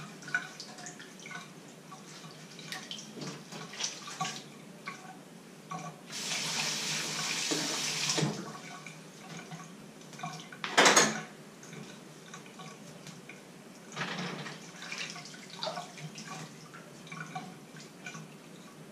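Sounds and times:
water splashing: 0.0s - 10.6s, 14.6s - 18.5s
tap water running: 5.7s - 18.8s
loud clank in sink: 10.7s - 11.2s.

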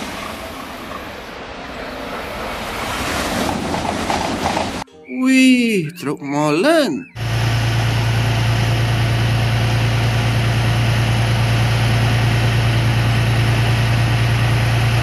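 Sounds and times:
truck engine idling: 7.1s - 15.0s.

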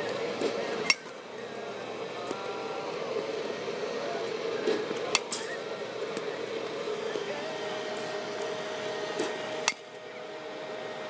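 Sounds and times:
steady mechanical hum: 0.0s - 11.0s
bat striking ball: 9.2s - 9.9s.

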